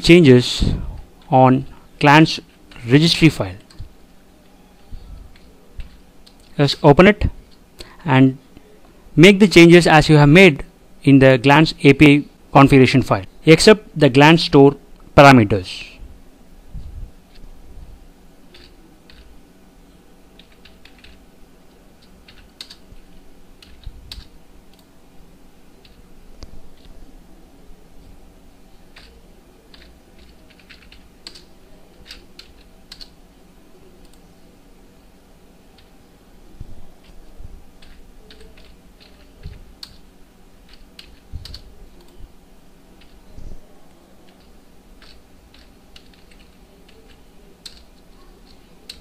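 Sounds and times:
computer keyboard typing: 0:18.5 - 0:19.3, 0:20.4 - 0:21.2, 0:22.0 - 0:24.9, 0:28.9 - 0:33.2, 0:37.8 - 0:42.2, 0:43.0 - 0:43.2, 0:44.2 - 0:49.0.

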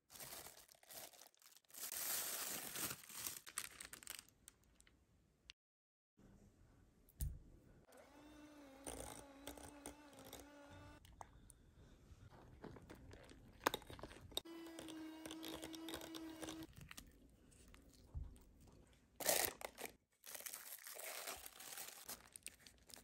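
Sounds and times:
electric hand mixer beating: 0:07.9 - 0:11.0, 0:14.4 - 0:16.7.

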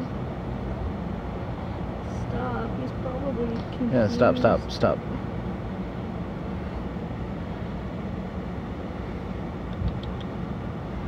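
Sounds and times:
low outdoor rumble: 0:00.0 - 0:11.0.

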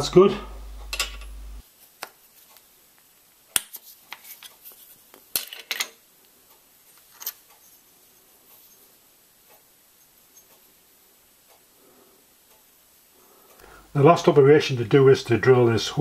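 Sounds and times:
metal parts clinking on vise: 0:07.1 - 0:07.4.

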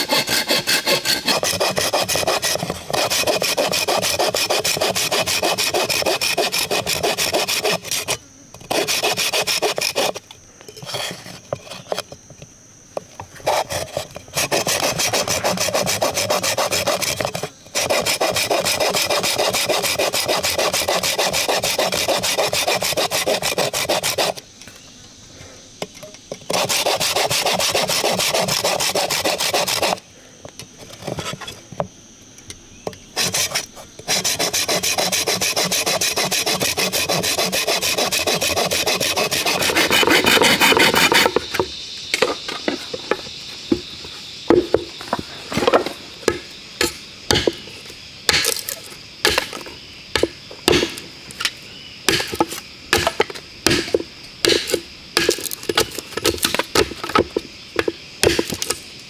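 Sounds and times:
wood rasping: 0:00.0 - 0:10.2, 0:13.4 - 0:24.4, 0:26.4 - 0:30.0, 0:33.2 - 0:43.3, 0:45.5 - 0:51.5, 0:52.1 - 0:58.8
sharp knocks on wood: 0:44.5 - 0:44.9, 0:47.3 - 0:47.6.

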